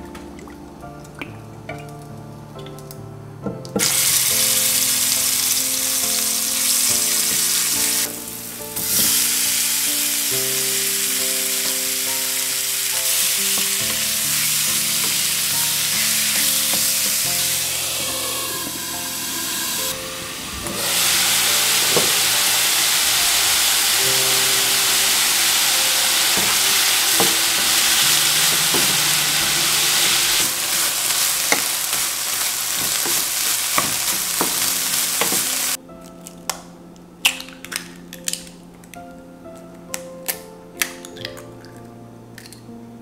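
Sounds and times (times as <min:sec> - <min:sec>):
chicken sizzling in a frying pan: 0:03.8 - 0:35.8
egg shell cracking against bowl: 0:37.2 - 0:39.0, 0:40.2 - 0:41.8, 0:42.4 - 0:42.6.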